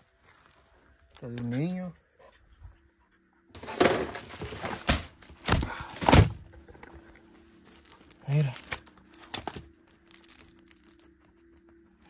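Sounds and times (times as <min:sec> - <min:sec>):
photo album rustling: 0:07.0 - 0:11.5.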